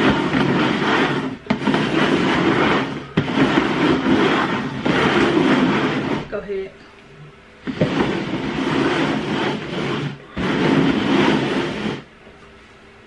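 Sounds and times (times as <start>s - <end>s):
plastic bowls scraping on table: 0.0s - 6.4s, 7.6s - 12.1s.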